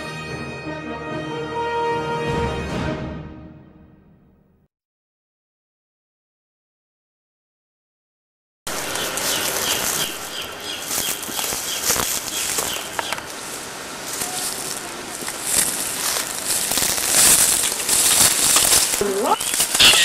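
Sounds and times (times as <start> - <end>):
footsteps crackling on pine needles: 8.7 - 20.0
steady outdoor hiss: 8.7 - 20.0.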